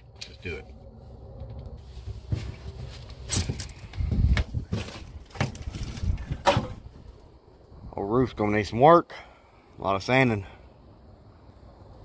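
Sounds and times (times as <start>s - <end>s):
footsteps on steel truck bed: 1.8s - 7.1s.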